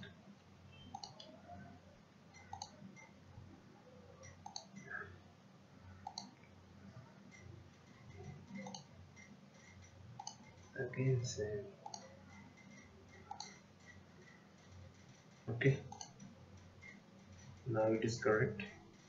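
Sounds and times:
faint low hum: 0:00.0 - 0:19.0
computer mouse clicks: 0:00.8 - 0:01.4, 0:02.3 - 0:03.2, 0:04.2 - 0:05.0, 0:06.0 - 0:06.5, 0:07.3 - 0:10.8, 0:11.8 - 0:17.7.

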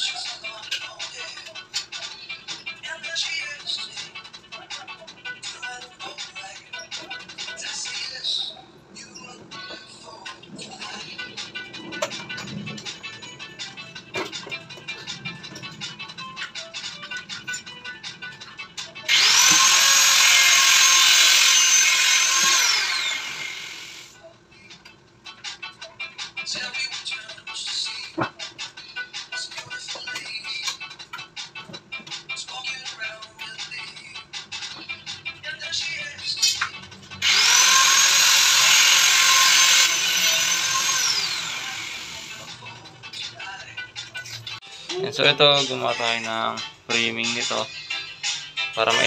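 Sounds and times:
electric drill motor whine: 0:19.1 - 0:24.2, 0:37.2 - 0:42.5.

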